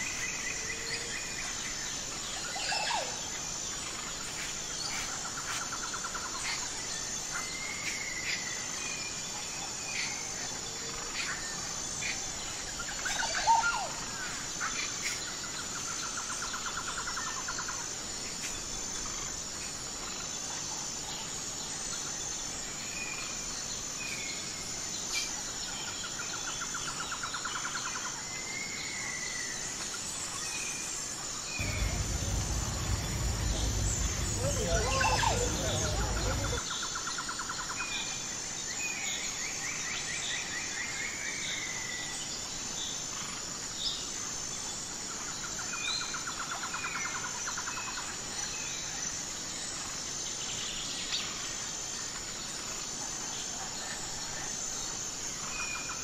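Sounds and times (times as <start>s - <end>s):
high-pitched insect chorus: 0.0s - 40.1s
bird trill: 31.6s - 36.6s
whistled bird calls: 31.6s - 36.6s.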